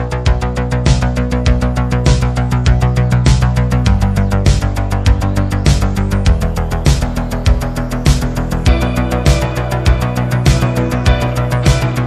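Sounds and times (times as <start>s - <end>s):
background music with fast beat: 0.0s - 12.0s.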